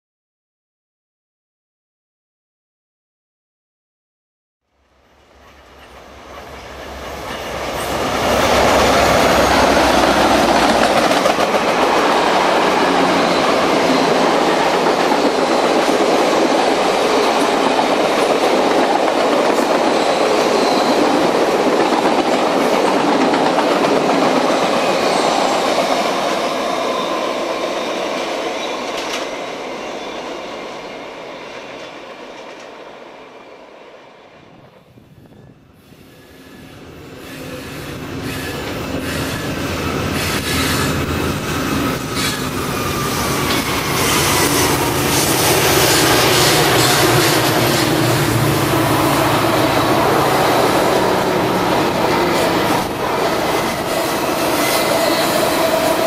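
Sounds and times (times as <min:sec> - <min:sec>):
diesel locomotive engine rumble: 0:05.2 - 0:16.0, 0:36.7 - 0:56.0
train wheels rolling on rails: 0:05.2 - 0:33.1, 0:36.0 - 0:56.0.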